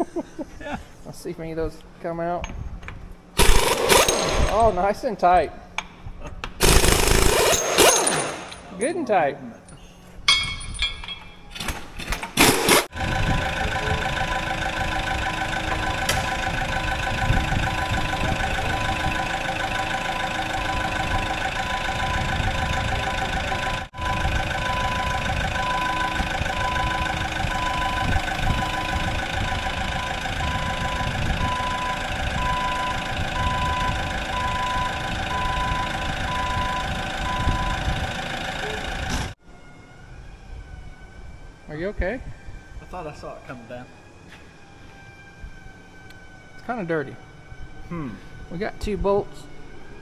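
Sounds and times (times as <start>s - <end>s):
machine engine running: 6.6s - 8.0s, 12.4s - 39.4s
beeping warning alarm: 12.9s - 39.4s.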